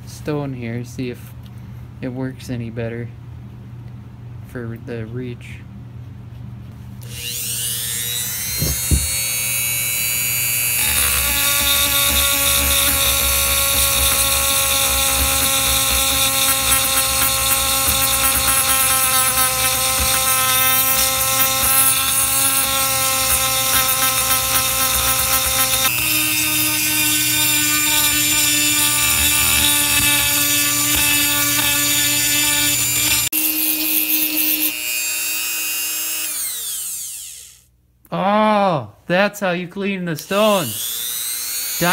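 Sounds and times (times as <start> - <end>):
rotary tool high-pitched whine: 7.0 - 37.7, 40.5 - 41.9
grinding stone on metal: 10.8 - 34.8.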